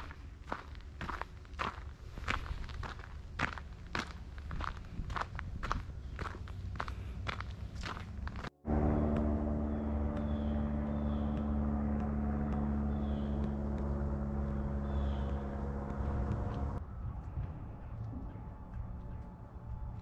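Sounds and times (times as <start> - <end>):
low engine-like hum: 5.8 - 20.0
footsteps: 11.1 - 20.0.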